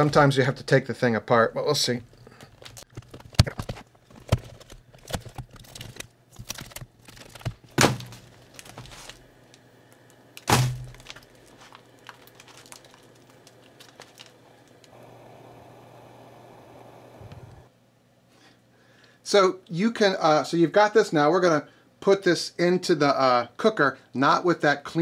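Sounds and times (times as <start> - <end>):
wax comb cracking and crunching: 2.4 - 14.9.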